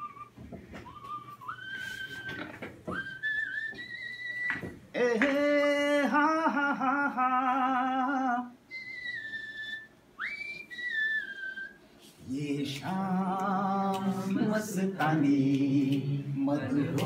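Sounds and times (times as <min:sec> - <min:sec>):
whistled tune: 0:00.0 - 0:04.8, 0:08.7 - 0:11.8
man singing: 0:04.9 - 0:08.6, 0:12.2 - 0:17.0.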